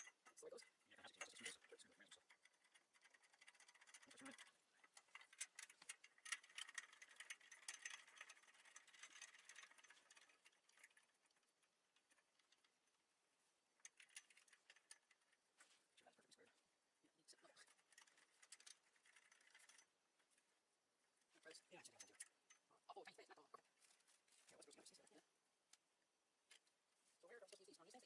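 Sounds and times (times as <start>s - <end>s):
small metal hardware clicking: 0.0s - 12.8s.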